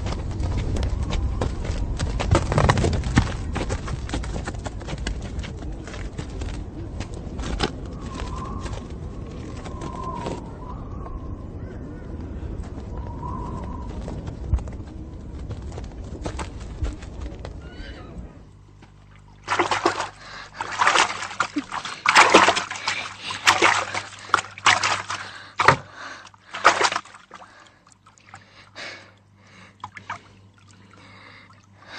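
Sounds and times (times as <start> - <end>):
low steady rumble: 0.0 - 31.9
water splashing in a bathtub: 19.0 - 28.6, 29.8 - 31.9.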